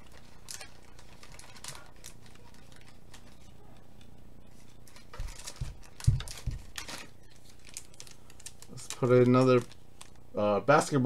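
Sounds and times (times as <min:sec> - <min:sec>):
card packs rustling: 0:00.0 - 0:11.0.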